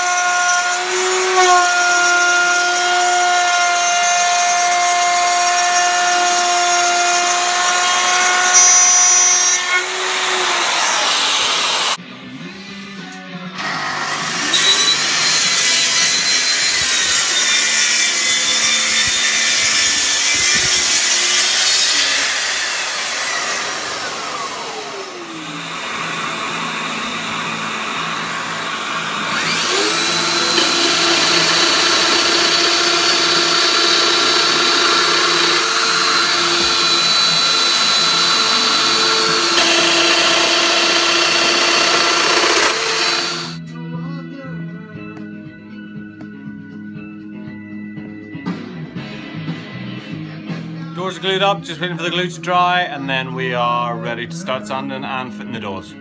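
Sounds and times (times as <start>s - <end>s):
power tool motors whining: 0.0s - 12.0s, 13.6s - 43.6s
joiner motor spinning: 13.6s - 43.6s.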